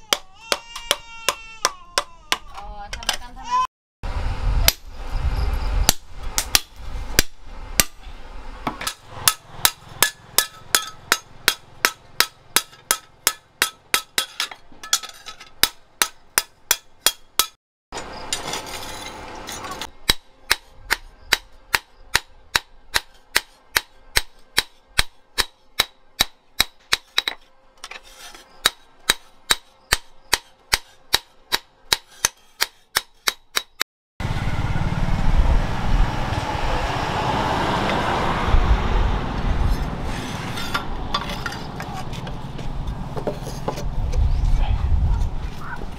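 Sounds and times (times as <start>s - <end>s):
hammer striking steel on anvil: 8.7s - 17.6s, 19.5s - 27.5s, 28.6s - 33.8s
rush of noise: 34.2s - 41.1s.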